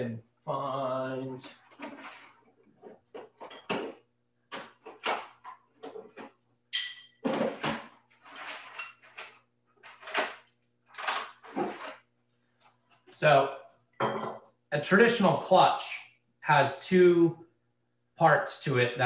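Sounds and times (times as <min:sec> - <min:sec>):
parts clattering in bins: 0:01.6 - 0:06.4, 0:07.2 - 0:12.0.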